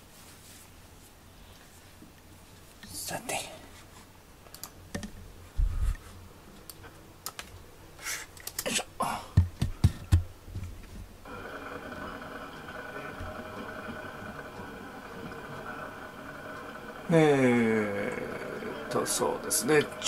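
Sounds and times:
steady hum: 11.2s - 20.0s.

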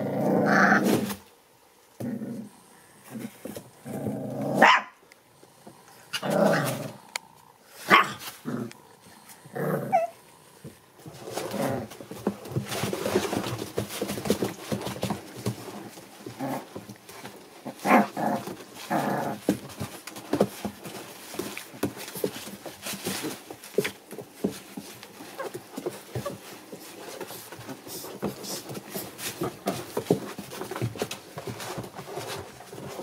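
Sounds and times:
puppies growling and yelping: 0.0s - 1.2s, 5.6s - 13.6s, 15.7s - 20.2s
paws scuffling on bedding: 7.7s - 33.0s.

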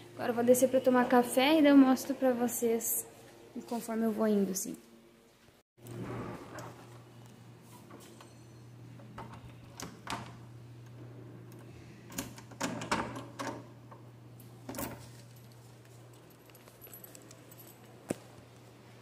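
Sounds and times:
keys jangling in lock: 14.8s - 18.0s.

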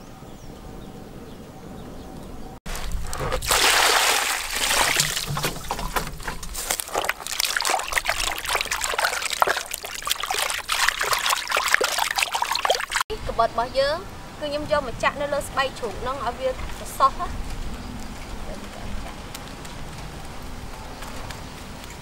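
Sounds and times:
hands scrubbing raw meat: 2.7s - 13.0s
water splashing in a basin: 2.7s - 13.0s
rush of water: 2.7s - 13.1s.

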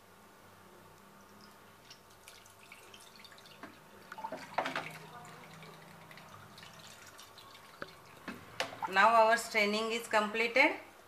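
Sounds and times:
liquid splashing and dripping: 1.3s - 9.0s.

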